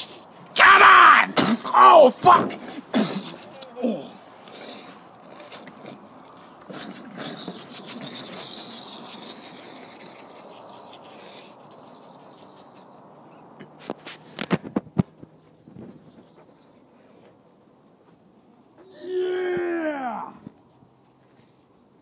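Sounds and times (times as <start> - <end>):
rustling and scraping handling: 2.6 - 18.4.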